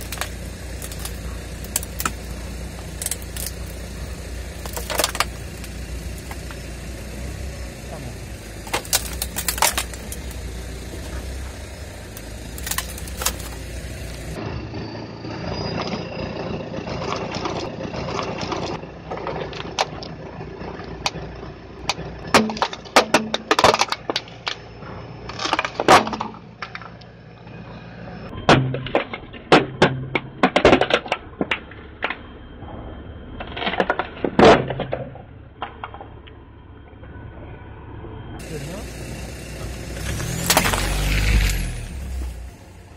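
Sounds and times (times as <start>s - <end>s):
plastic toy crunching under tyre: 0.0s - 6.5s, 8.6s - 14.4s, 40.0s - 42.3s
car engine humming: 0.0s - 42.9s.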